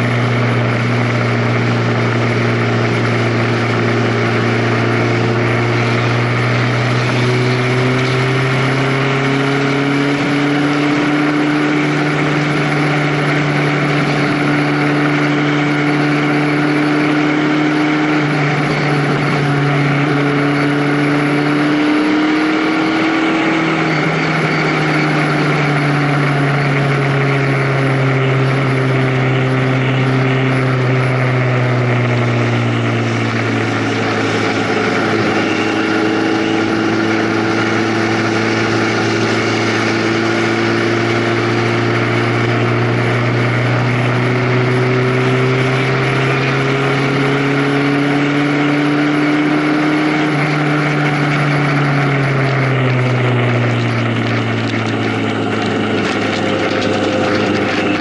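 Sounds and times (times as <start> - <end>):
vehicle engine running: 0.0 - 58.0
wind and road noise: 0.0 - 58.0.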